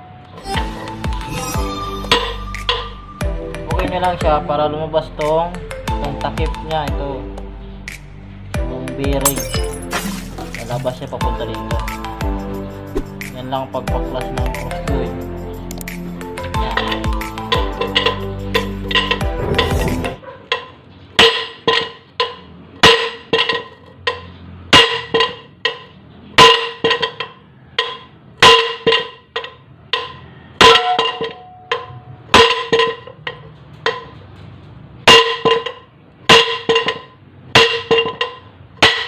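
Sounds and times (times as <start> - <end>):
hammer striking steel: 30.6 - 34.3.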